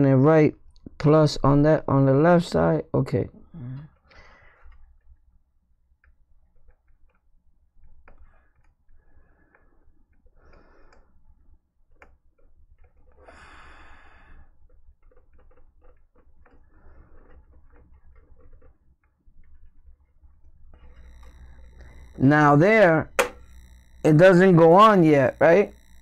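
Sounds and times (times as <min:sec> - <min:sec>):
cable clicks and rustling: 0:14.6 - 0:22.2.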